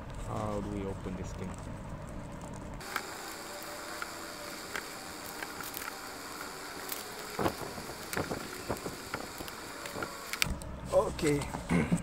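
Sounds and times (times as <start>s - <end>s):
background hiss: 2.8s - 10.5s.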